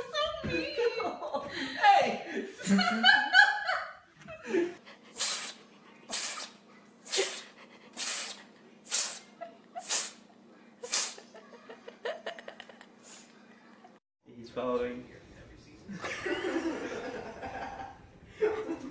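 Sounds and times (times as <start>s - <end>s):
cat sneezing: 5.1s - 11.4s.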